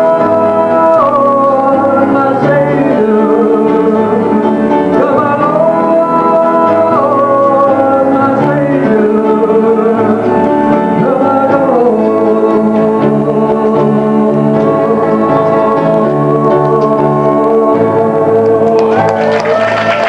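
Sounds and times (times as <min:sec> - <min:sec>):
man singing country ballad: 0:00.0 - 0:19.7
instrumental accompaniment: 0:00.0 - 0:20.0.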